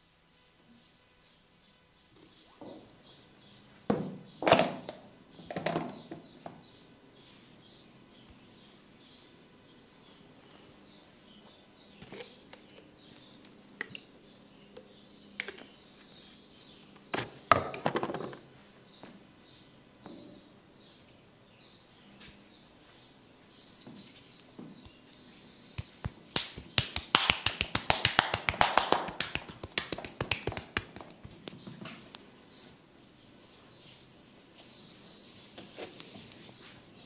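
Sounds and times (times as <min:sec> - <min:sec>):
rubbing on a head: 0:25.8 - 0:31.6, 0:32.7 - 0:36.9.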